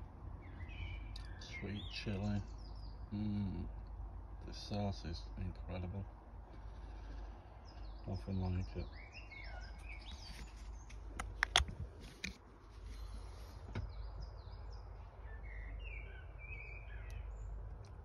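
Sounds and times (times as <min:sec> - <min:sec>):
low background rumble: 0:00.0 - 0:18.0
birds chirping and singing: 0:00.3 - 0:11.6, 0:12.8 - 0:18.0
sharp clicks: 0:10.8 - 0:12.4.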